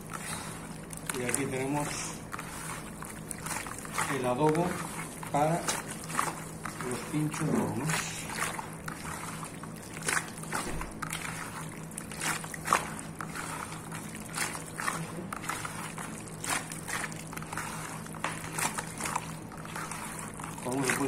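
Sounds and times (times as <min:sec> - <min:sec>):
wet squelches and slaps: 0:00.0 - 0:01.6, 0:02.2 - 0:21.0
steady low hum: 0:00.0 - 0:21.0.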